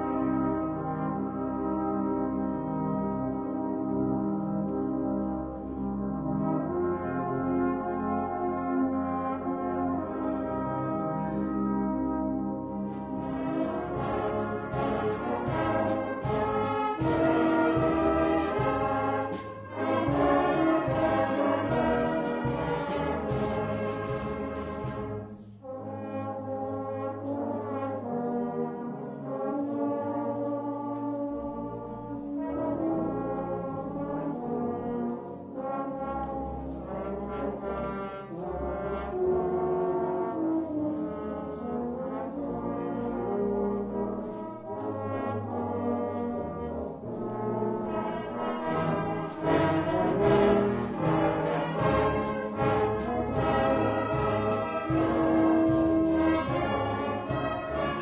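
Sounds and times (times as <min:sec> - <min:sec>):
brass band playing held chords: 0:00.0 - 0:58.0
sharp regular beats: 0:13.2 - 0:25.7, 0:48.6 - 0:58.0.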